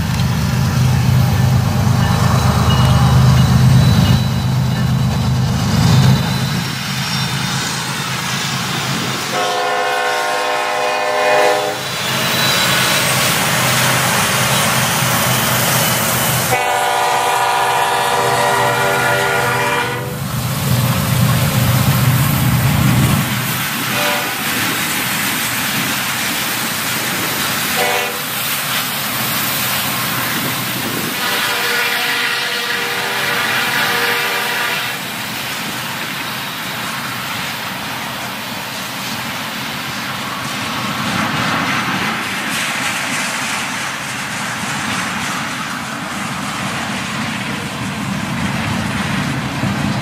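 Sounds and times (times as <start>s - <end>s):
train wheels on rails: 0.0s - 50.0s
train horn: 9.3s - 12.0s, 16.5s - 20.2s, 23.9s - 24.4s, 27.7s - 28.3s, 31.1s - 35.1s.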